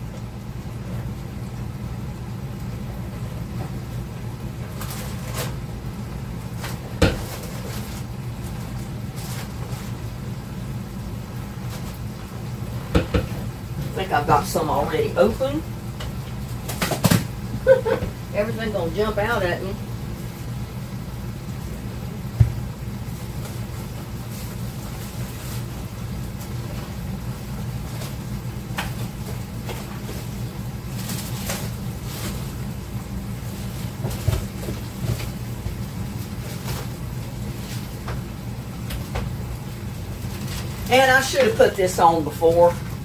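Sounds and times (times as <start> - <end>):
steady low hum: 0.0 - 43.0
items knocking in cupboard: 7.0 - 7.4, 12.9 - 13.4.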